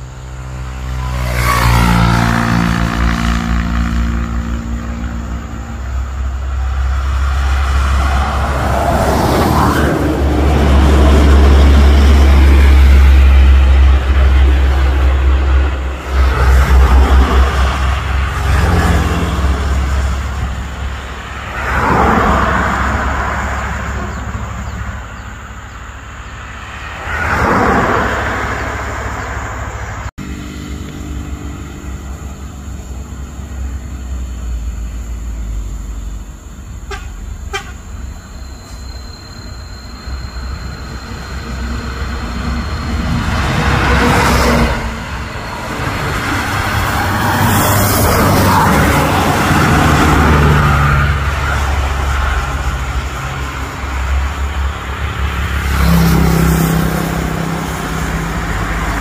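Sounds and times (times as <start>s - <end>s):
buses and truck passing: 0.0s - 59.0s
diesel engine rumble: 0.0s - 59.0s
vehicle horn toots: 36.8s - 37.9s.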